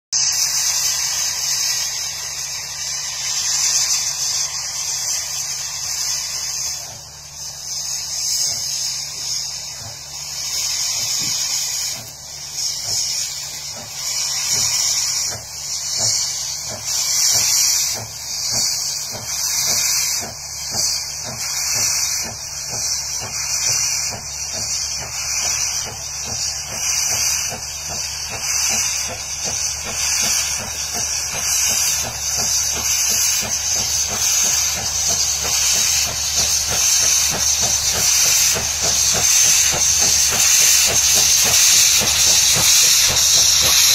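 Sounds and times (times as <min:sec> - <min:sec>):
locomotive exhaust chuffing: 0:00.2 - 0:43.9
steam locomotive hissing: 0:00.2 - 0:43.9.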